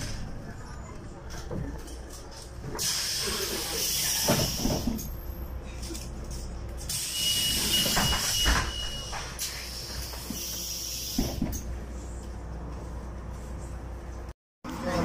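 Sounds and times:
pneumatic bus doors hissing: 2.8 - 5.2, 6.9 - 11.7
bus engine running: 9.0 - 15.0.

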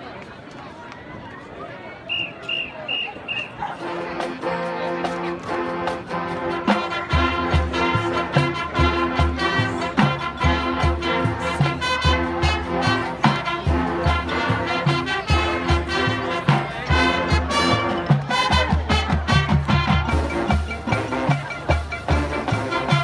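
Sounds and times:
marching band brass chords: 2.1 - 23.0
bass drums: 7.1 - 23.0.

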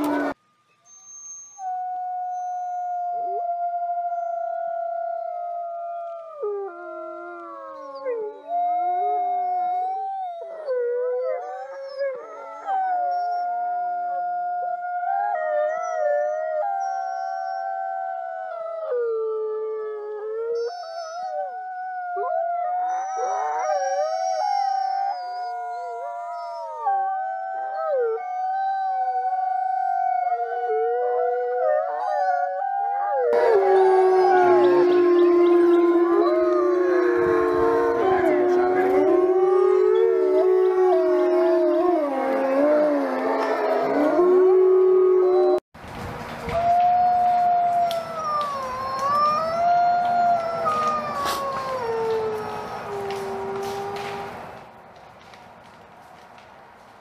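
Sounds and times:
wolves howling: 0.0 - 45.6, 46.5 - 54.5.

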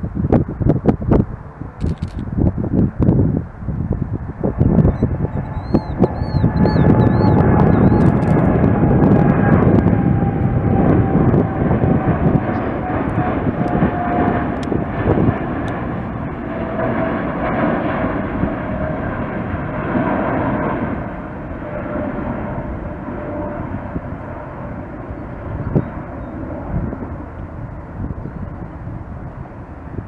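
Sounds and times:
jet engine rumble: 0.0 - 30.0
faint whining tone: 4.5 - 15.8.

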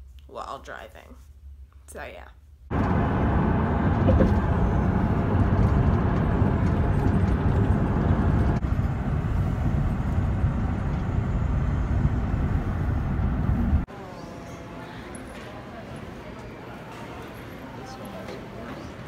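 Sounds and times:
car cabin road and engine rumble: 2.7 - 13.9.

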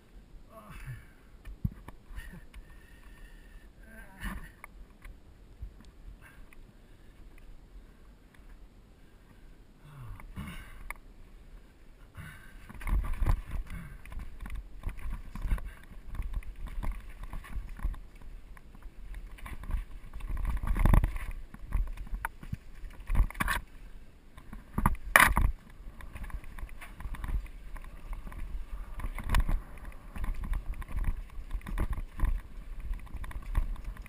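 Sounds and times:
tyres crunching over stones: 12.6 - 34.0
wind rumble on microphone: 12.6 - 34.0
bike frame rattling and clunking: 12.7 - 23.7, 24.4 - 34.0.

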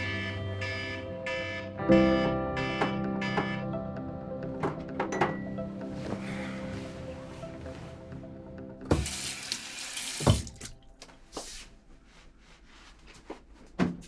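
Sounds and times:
soft background music: 0.0 - 12.9
knocks and clicks: 2.2 - 3.7, 4.5 - 5.6
tap running: 8.8 - 10.7
splashing water: 9.0 - 11.0.

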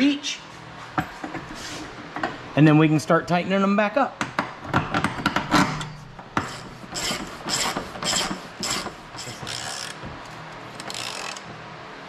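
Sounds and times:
hand ratchet clicking: 6.5 - 10.0, 10.8 - 11.5.

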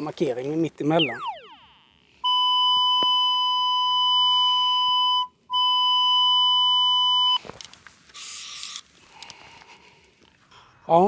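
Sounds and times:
cable locator electronic beep tone: 1.0 - 7.4.

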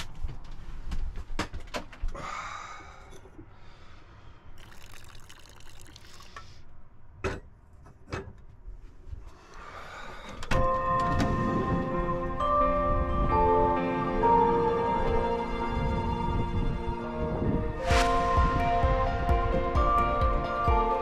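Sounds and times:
coffee pouring into cup: 4.6 - 6.4.

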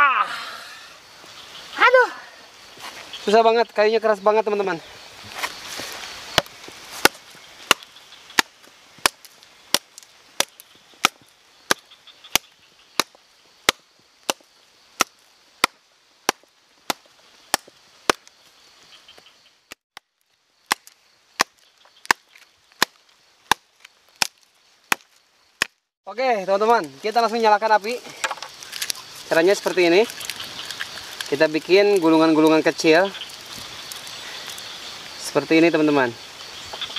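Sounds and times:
machete chopping wood: 6.4 - 18.3, 20.7 - 25.8.

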